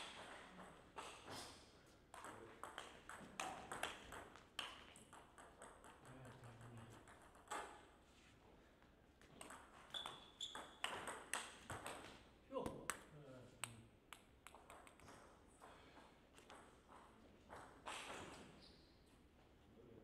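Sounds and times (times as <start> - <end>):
table tennis ball hits and bounces: 0.0 - 1.5, 2.1 - 8.0, 9.2 - 13.1, 14.1 - 18.6.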